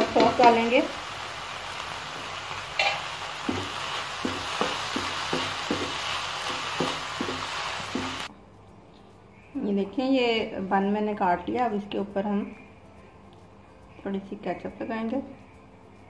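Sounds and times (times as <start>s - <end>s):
chicken and onion sizzling: 0.0s - 8.3s
spatula knocking against pan: 2.8s - 8.3s.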